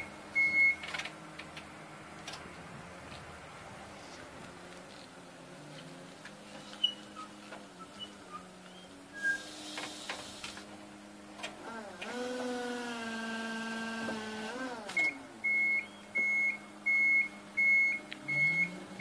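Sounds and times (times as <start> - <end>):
reversing alarm beeping: 0.0 - 0.8, 15.0 - 19.0
hydraulic pump motor whining: 11.6 - 15.2.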